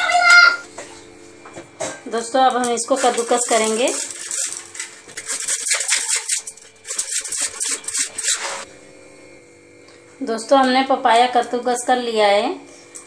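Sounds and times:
grater rasping: 2.8s - 8.6s.

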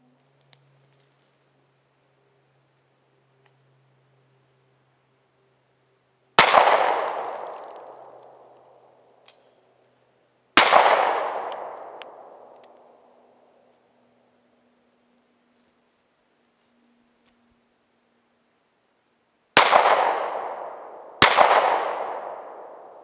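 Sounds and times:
pistol shots with echo: 6.4s - 8.9s, 10.6s - 13.0s, 19.6s - 23.0s.

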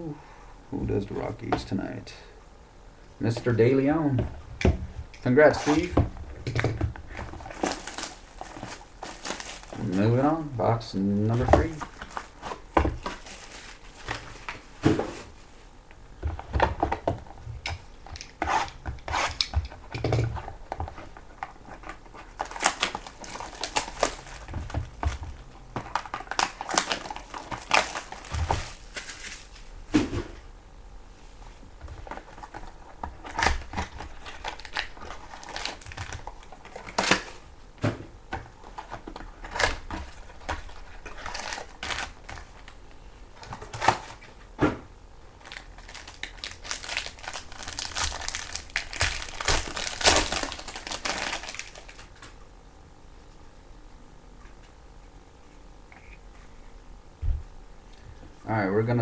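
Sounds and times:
wrappers crinkling and rustling: 5.2s - 5.9s, 6.6s - 15.4s, 18.0s - 29.7s, 31.9s - 37.4s, 38.6s - 44.4s, 45.4s - 52.4s
cardboard packs knocking: 11.3s - 15.2s.

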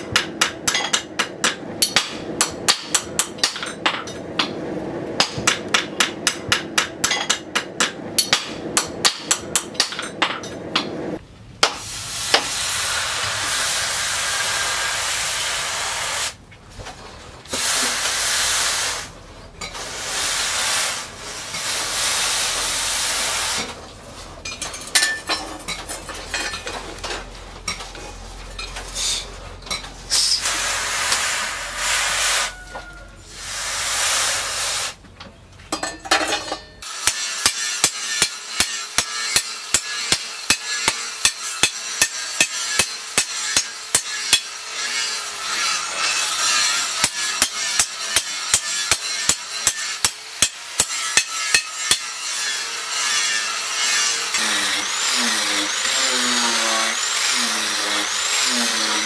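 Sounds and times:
hot blade hissing in water: 11.8s - 16.4s, 17.5s - 19.2s, 19.8s - 23.7s, 30.1s - 32.7s, 33.3s - 35.0s.

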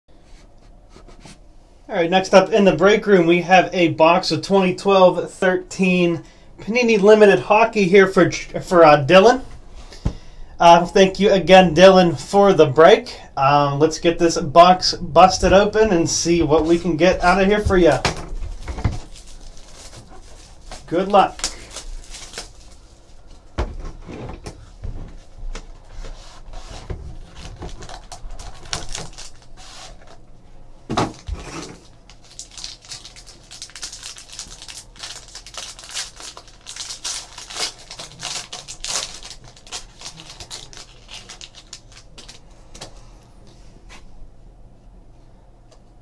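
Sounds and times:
handling cards: 14.9s - 23.5s, 31.0s - 43.0s
foil wrapper crinkling: 16.6s - 23.6s, 26.5s - 30.2s, 31.1s - 42.5s.

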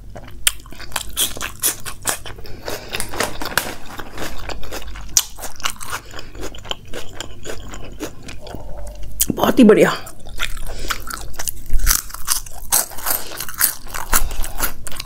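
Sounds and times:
close chewing with crisp crunches: 0.0s - 9.3s, 10.0s - 15.0s.

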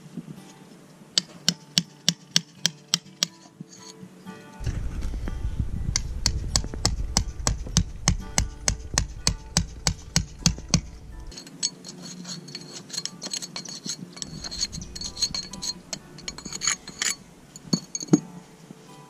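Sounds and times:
hammer striking chisel: 1.2s - 3.4s, 5.9s - 18.3s
chisel clinking on mortar: 1.2s - 4.0s, 9.3s - 18.3s.

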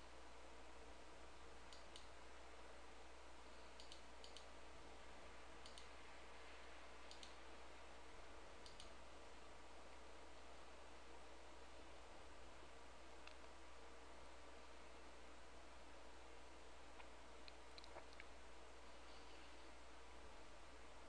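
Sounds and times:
low steady hum: 0.0s - 21.0s
computer mouse clicks: 1.7s - 2.2s, 3.7s - 4.5s, 5.6s - 6.0s, 7.0s - 7.4s, 8.6s - 9.0s, 17.0s - 18.3s.

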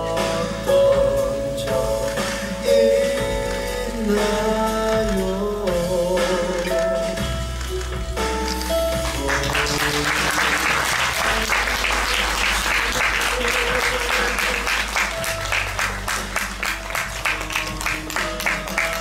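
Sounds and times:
background music with sustained notes: 0.0s - 19.0s
audience applauding: 9.0s - 19.0s.

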